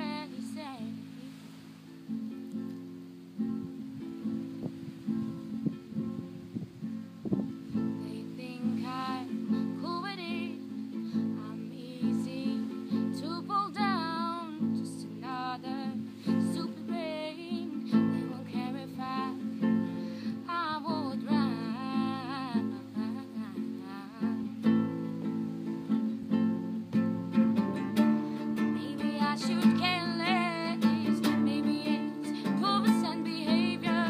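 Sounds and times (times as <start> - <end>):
woman singing: 0.0 - 1.4, 7.7 - 25.4, 27.6 - 34.0
acoustic guitar strumming: 0.0 - 34.0.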